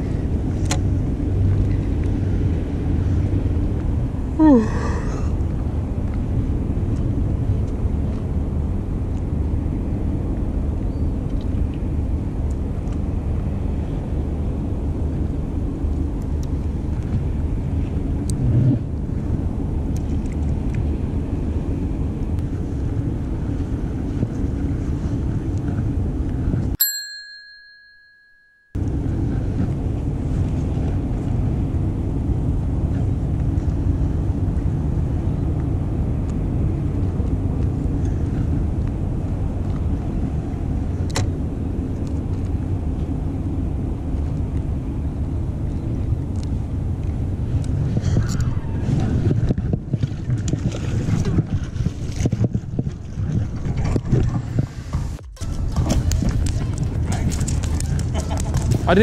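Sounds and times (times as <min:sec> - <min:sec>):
wind rumble: 0:00.0 - 0:26.8, 0:28.8 - 0:59.0
harbour background: 0:00.0 - 0:59.0
bell-like ding: 0:26.8 - 0:28.8.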